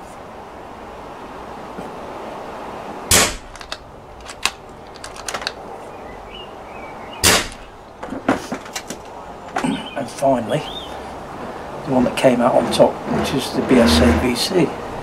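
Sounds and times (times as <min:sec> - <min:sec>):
small clicks: 0:03.5 - 0:05.6.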